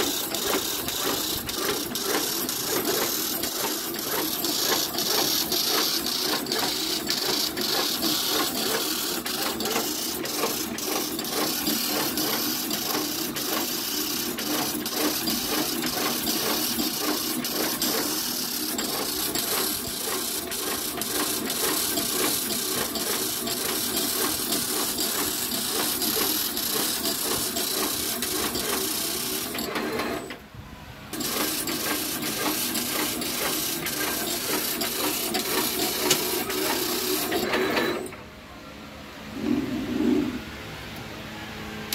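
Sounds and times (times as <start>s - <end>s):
machine clattering clicks: 0.0s - 30.4s, 31.2s - 38.2s.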